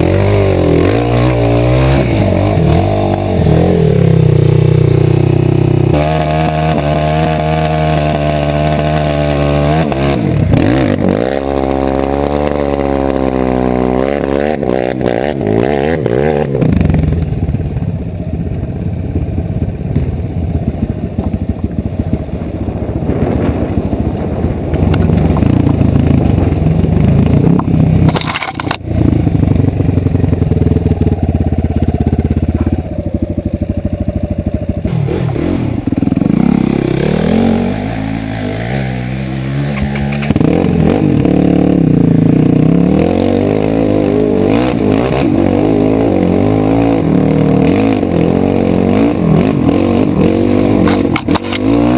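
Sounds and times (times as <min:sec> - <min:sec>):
dirt bike engine revving: 0:00.0 - 0:17.6, 0:20.1 - 0:51.9.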